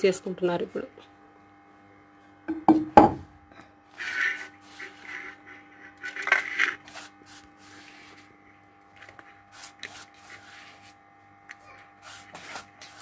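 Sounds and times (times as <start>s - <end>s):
faint steady hum: 0.0s - 13.0s
hand scraping stone mortar: 4.0s - 8.2s.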